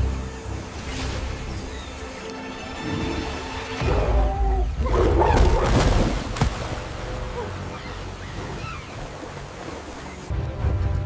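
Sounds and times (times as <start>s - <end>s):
water splashing and rushing: 0.0s - 11.0s.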